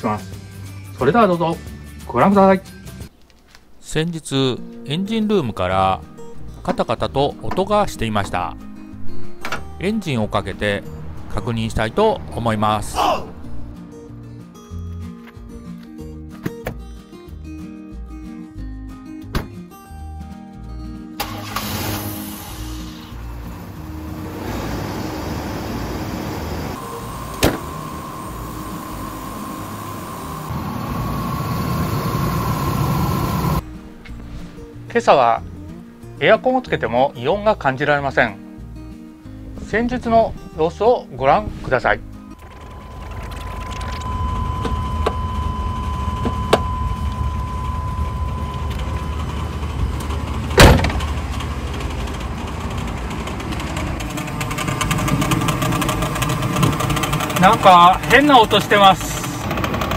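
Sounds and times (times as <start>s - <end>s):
door slamming: 19.3s - 19.6s, 27.4s - 27.7s, 50.5s - 51.2s
car engine running: 22.9s - 33.6s, 42.4s - 59.9s
steady high tone: 24.5s - 33.6s, 42.4s - 50.4s
thin steady whine: 24.6s - 33.6s, 42.4s - 50.5s
fast engine rattle: 47.8s - 59.9s.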